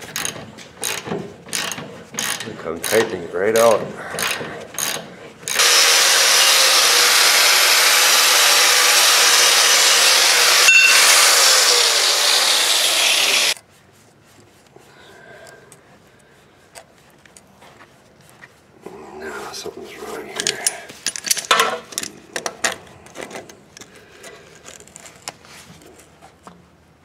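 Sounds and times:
ratchet clicks: 0:00.0 - 0:05.7
electric power tool running: 0:05.5 - 0:13.6.

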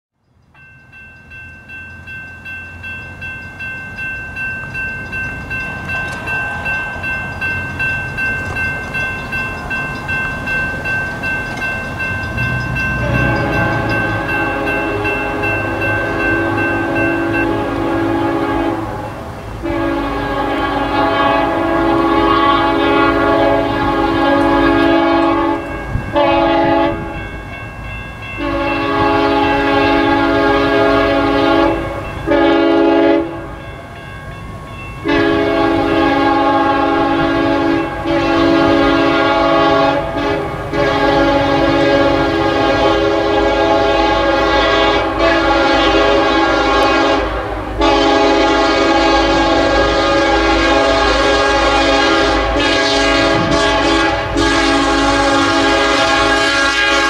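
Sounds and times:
locomotive air horn blasts: 0:12.7 - 0:27.2, 0:28.4 - 0:33.5, 0:35.0 - 0:57.0.

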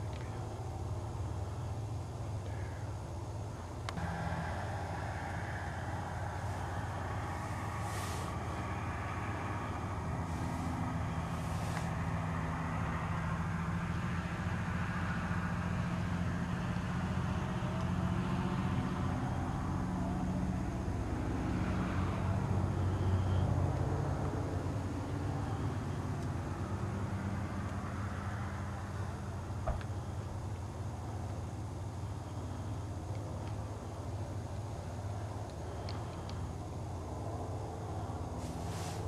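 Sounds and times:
car engine idling: 0:00.0 - 0:39.0
soft hisses: 0:06.1 - 0:08.8, 0:10.2 - 0:12.0, 0:38.4 - 0:39.0.

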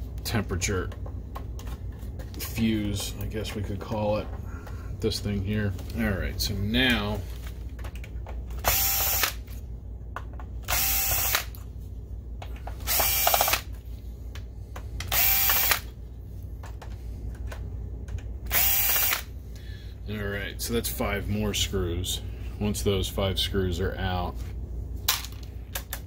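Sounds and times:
cordless drill whining: 0:08.6 - 0:09.4, 0:10.7 - 0:11.5, 0:12.9 - 0:13.7, 0:15.1 - 0:15.8, 0:18.5 - 0:19.3.

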